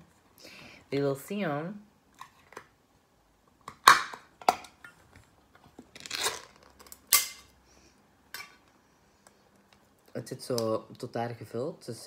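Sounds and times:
metal can ring-pull tearing open: 6.0s - 7.4s.

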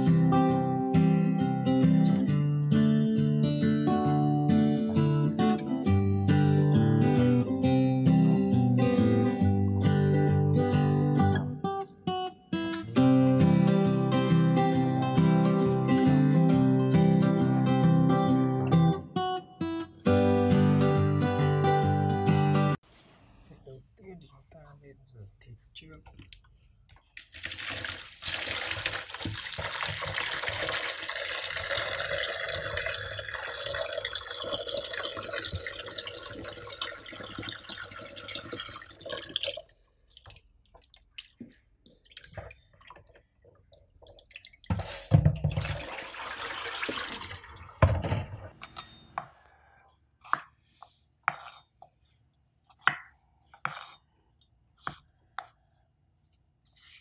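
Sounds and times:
water splashing as hands rinse: 27.2s - 47.8s
tap water pouring into a bowl: 27.2s - 48.1s
knife cuts on a cutting board: 50.2s - 52.0s, 52.6s - 54.1s, 54.8s - 55.8s.

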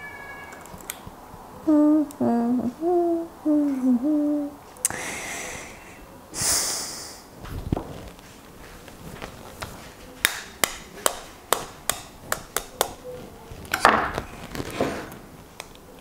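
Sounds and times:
child humming: 1.6s - 5.9s
short hissing noises: 6.4s - 7.3s.

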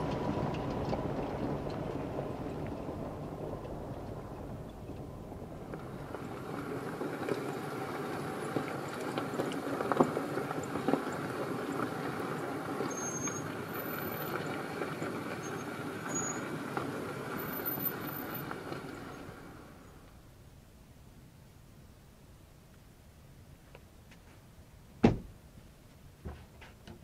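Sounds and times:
vehicle driving on gravel: 0.0s - 20.3s
sharp knocks: 25.0s - 25.3s.

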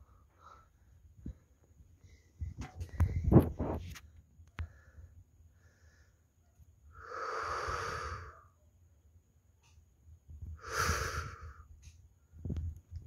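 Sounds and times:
person breathing out heavily: 7.0s - 8.5s, 10.6s - 11.7s.

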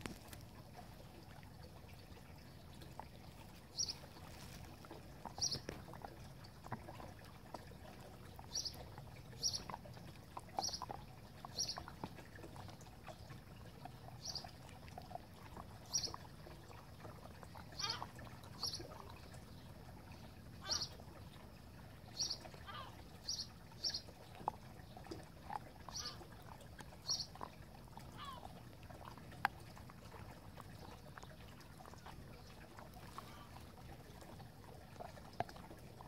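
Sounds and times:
dog chewing and crunching: 0.0s - 1.0s, 2.9s - 12.8s, 24.3s - 28.1s.

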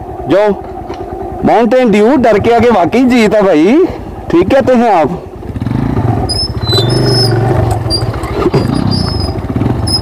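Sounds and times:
motorcycle engine idling: 0.0s - 10.0s
high-pitched squeaks: 6.3s - 10.0s.

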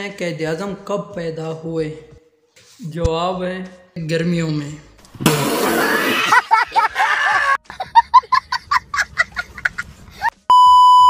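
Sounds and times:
child cackling laugh: 5.9s - 10.4s.

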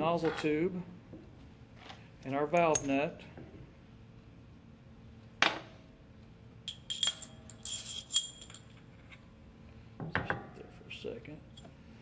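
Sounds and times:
small metal parts clinking: 6.7s - 8.8s.

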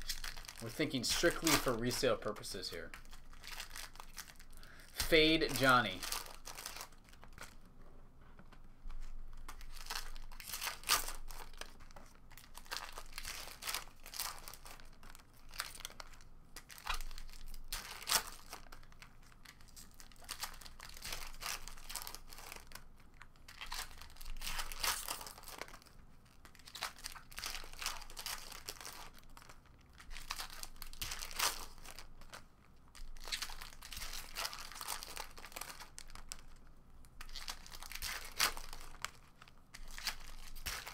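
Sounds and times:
foil wrappers tearing and crinkling: 0.0s - 7.6s, 9.4s - 40.9s.

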